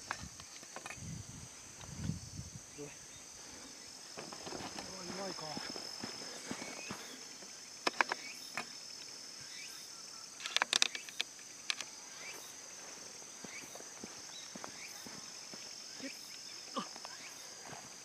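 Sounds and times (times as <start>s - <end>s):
insects trilling: 0.0s - 18.0s.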